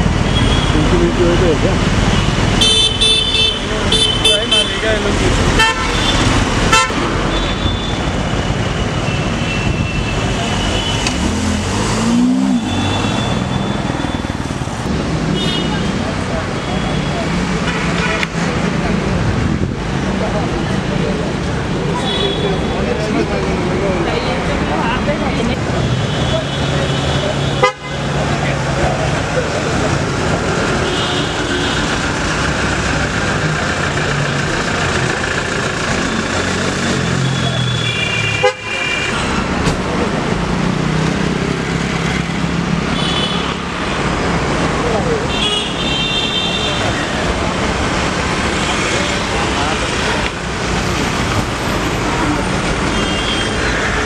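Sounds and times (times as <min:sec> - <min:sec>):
street traffic: 0:00.0 - 0:54.0
car horn toot: 0:27.6 - 0:28.0, 0:37.4 - 0:39.2
vehicle engines running: 0:28.1 - 0:38.3, 0:46.5 - 0:54.0.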